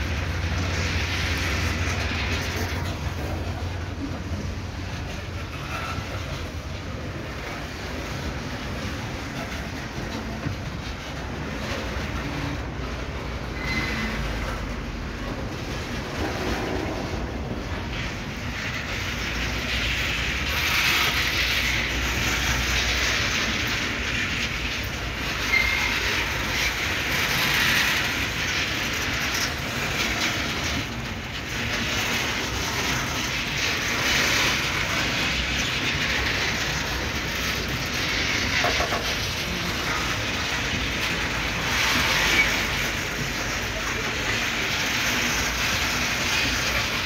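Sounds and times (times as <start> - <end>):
train wheels clattering on rail: 0.0 - 47.0
high squeal: 13.4 - 14.6, 25.4 - 26.4.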